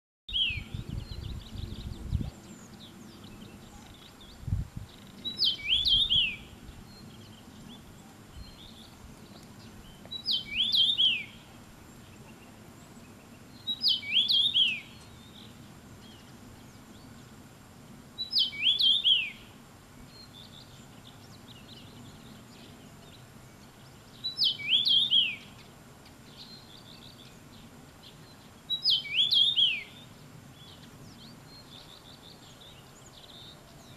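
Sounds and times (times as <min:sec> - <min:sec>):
bird whistled song: 0:00.3 - 0:07.8, 0:08.4 - 0:11.5, 0:13.5 - 0:17.1, 0:18.2 - 0:19.5, 0:23.6 - 0:25.7, 0:28.0 - 0:33.9.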